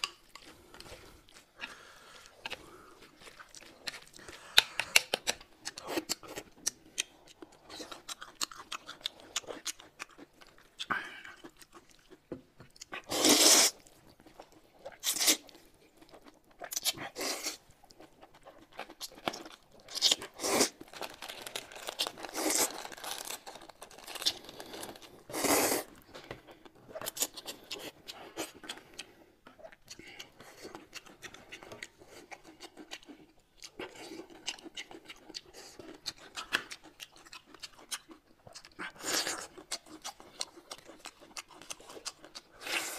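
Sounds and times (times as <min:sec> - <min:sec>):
noodles slurped and chewed: 0:00.0 - 0:42.9
plastic food packet crinkling: 0:18.8 - 0:25.3.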